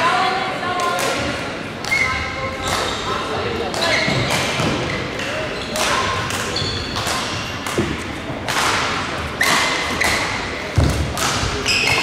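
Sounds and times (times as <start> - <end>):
racquets hitting shuttlecock: 3.7 - 12.0
shoe squeaks on court floor: 3.8 - 7.6, 11.6 - 12.0.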